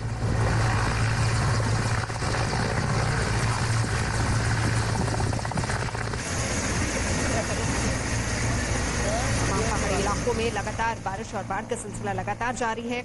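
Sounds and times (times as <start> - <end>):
helicopter hovering: 0.0 - 13.0.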